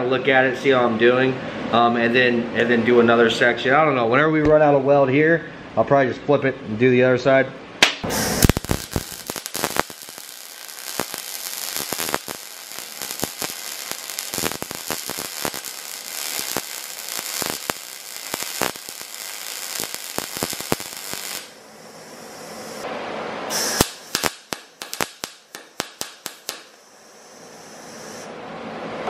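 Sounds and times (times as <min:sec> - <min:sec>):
welding arc crackling and popping: 0:07.8 - 0:21.6, 0:23.5 - 0:28.3.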